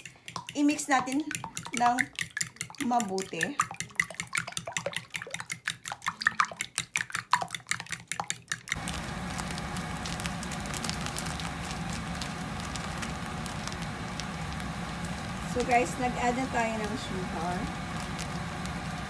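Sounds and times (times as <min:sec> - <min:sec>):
utensil beating mixture in bowl: 0:00.0 - 0:19.0
low hum: 0:08.8 - 0:19.0.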